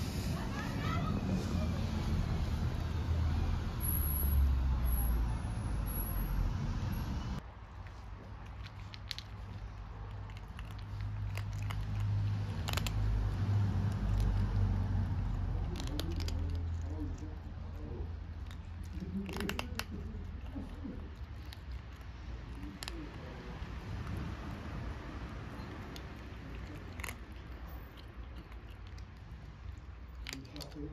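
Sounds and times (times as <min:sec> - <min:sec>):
kittens crunching dry kibble: 0:07.6 - 0:30.9.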